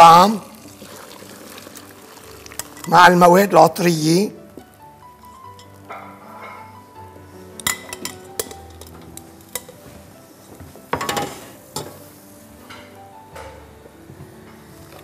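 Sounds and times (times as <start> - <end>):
broth pouring into pot: 0.0 - 3.2
metal pot and utensils clinking: 0.8 - 3.2, 5.2 - 6.8, 7.6 - 9.8, 10.9 - 12.0.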